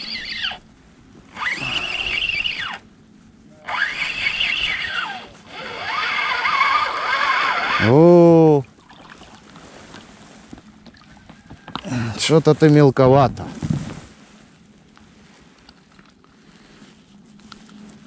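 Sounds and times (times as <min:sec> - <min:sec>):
fishing reel gear whine: 0:00.0 - 0:00.7, 0:01.3 - 0:02.9, 0:03.6 - 0:08.6.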